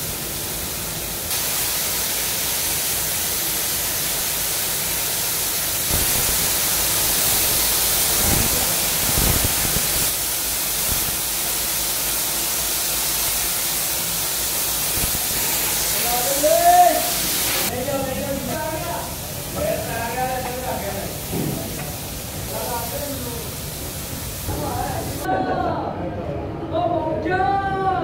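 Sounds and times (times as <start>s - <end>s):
spray gun hissing: 0.0s - 25.3s.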